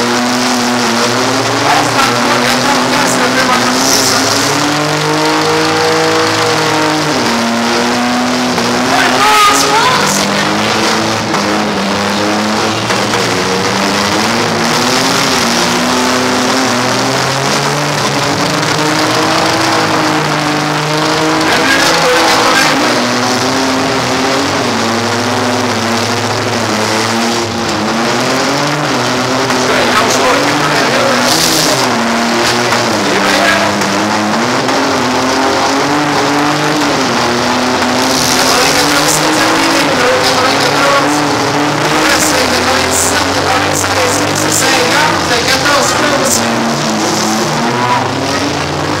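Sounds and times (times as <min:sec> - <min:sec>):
car engines revving: 0:00.0 - 0:49.0.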